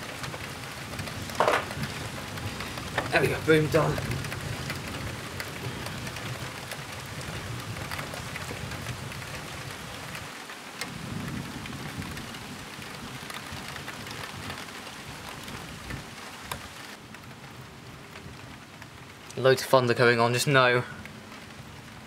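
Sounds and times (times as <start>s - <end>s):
thunder rumbling: 0.0s - 16.5s
heavy rain with ticking drops: 0.0s - 22.0s.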